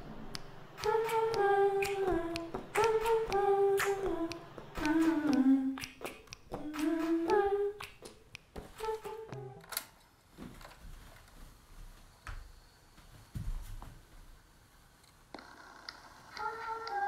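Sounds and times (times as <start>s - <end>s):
sharp clicks or taps: 0.3s - 9.4s
person humming a tune: 0.8s - 9.8s, 16.3s - 17.0s.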